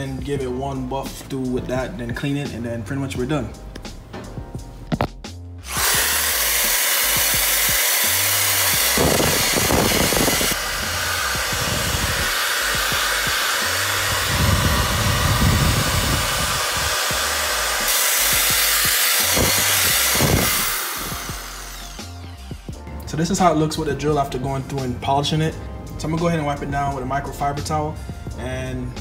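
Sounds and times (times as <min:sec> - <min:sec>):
background music with bass beat: 0:00.0 - 0:06.5, 0:07.1 - 0:29.0
power drill buffing wheel whir: 0:05.6 - 0:22.7.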